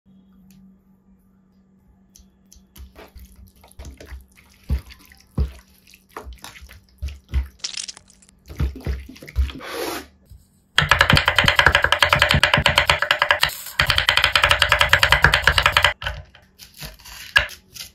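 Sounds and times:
wet squishes of mixing chicken: 2.8s - 7.6s
knife chopping on wooden board: 10.8s - 16.2s.

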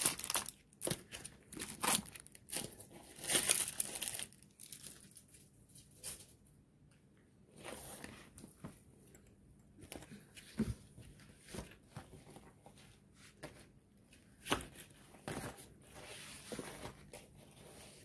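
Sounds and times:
plastic wrapper crinkling: 0.0s - 5.4s.

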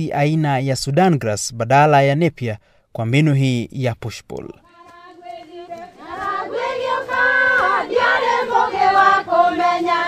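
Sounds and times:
choir singing: 4.7s - 10.0s.

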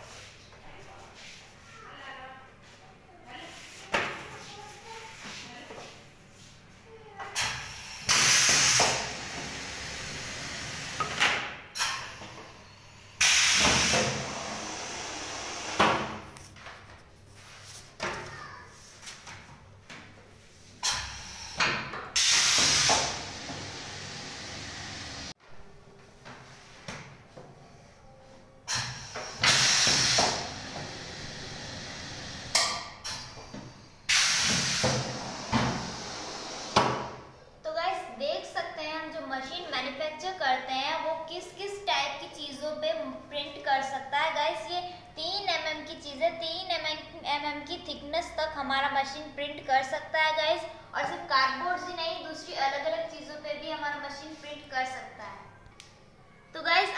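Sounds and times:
pneumatic cylinder air hisses: 7.4s - 11.2s, 11.8s - 16.2s, 20.8s - 25.3s, 28.7s - 37.3s.

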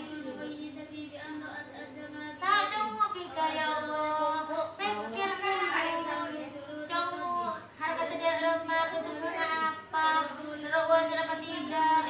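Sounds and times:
girls singing a chanted melody: 0.0s - 12.0s.

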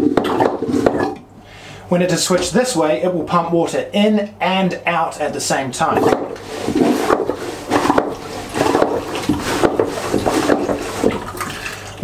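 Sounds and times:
water moving through pump: 0.0s - 4.3s, 4.9s - 12.0s
toilet hand pump strokes: 5.8s - 12.0s.

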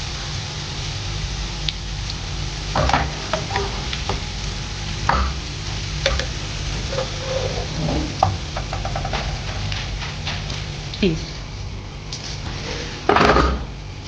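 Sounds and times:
onions sizzling in hot oil: 0.0s - 13.0s
spatula scraping a pan: 6.1s - 8.3s.

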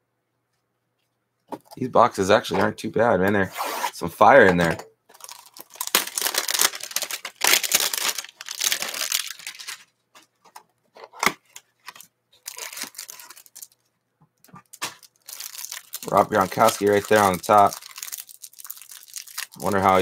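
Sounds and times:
cardboard and wrapper tearing: 5.2s - 9.9s, 11.2s - 13.8s, 14.6s - 20.0s.

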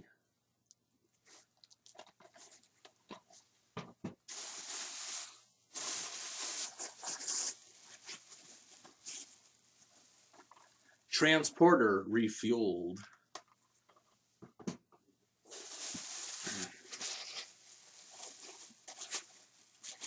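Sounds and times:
gift bag rustling and crinkling: 4.3s - 10.7s, 15.5s - 20.0s.

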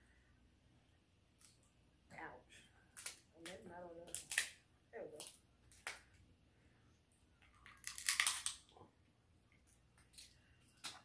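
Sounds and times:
shellfish shells cracking: 2.9s - 3.2s, 4.1s - 4.6s, 7.4s - 8.8s.

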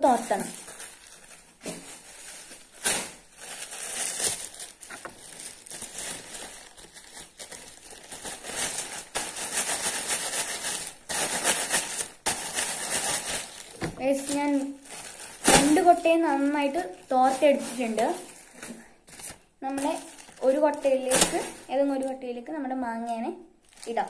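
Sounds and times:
plastic bag crinkling: 0.0s - 24.0s.

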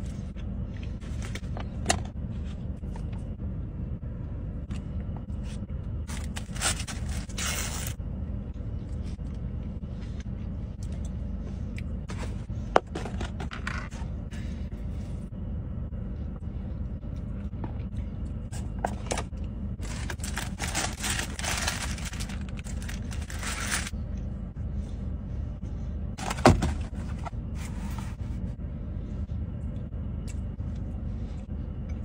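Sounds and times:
low hum inside a car: 0.0s - 32.0s
paper wrapper rustling: 19.8s - 23.9s.

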